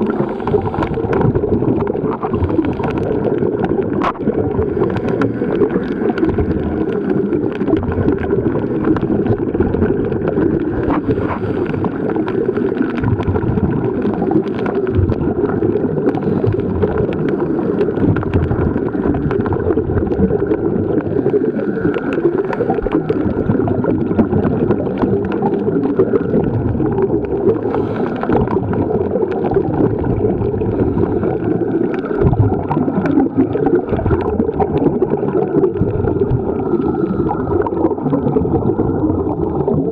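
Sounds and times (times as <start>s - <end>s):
muffled underwater rush: 0.0s - 39.9s
sharp crackling clicks: 0.1s - 30.2s.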